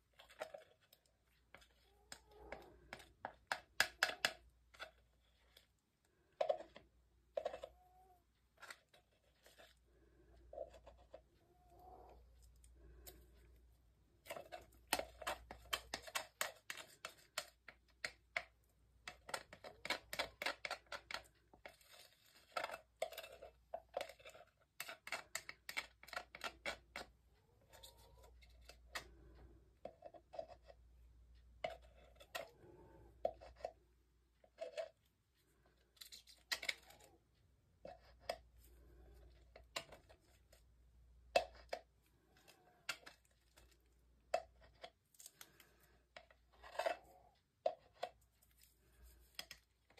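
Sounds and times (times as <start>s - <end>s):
stick scraping plastic cup: 0.1s - 7.8s, 8.6s - 11.3s, 14.2s - 35.1s, 37.8s - 40.7s, 41.3s - 49.9s.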